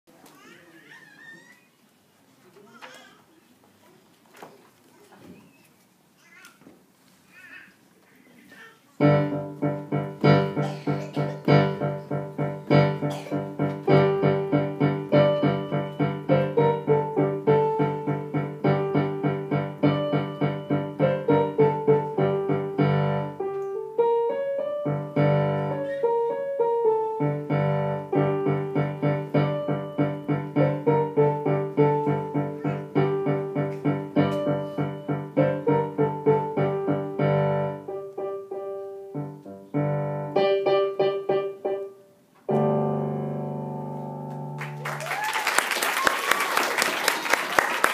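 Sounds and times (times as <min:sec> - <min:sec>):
digital piano piece: 0:09.0 - 0:45.0.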